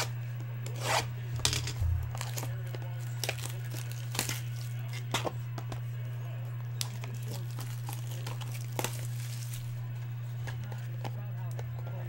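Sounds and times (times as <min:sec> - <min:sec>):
steady low hum: 0:00.0 - 0:12.0
cellophane wrap crinkling: 0:01.8 - 0:05.1, 0:06.6 - 0:11.6.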